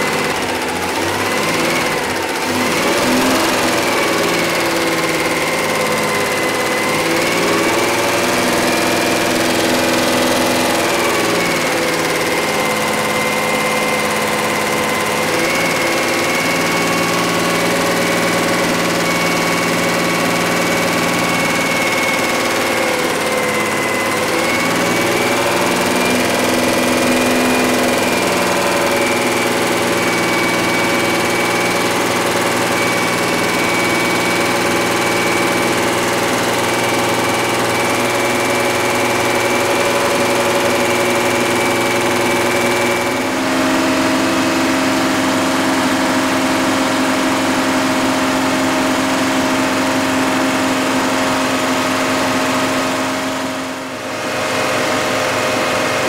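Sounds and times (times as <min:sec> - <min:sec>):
engine running at fast idle: 0:00.0 - 0:56.0.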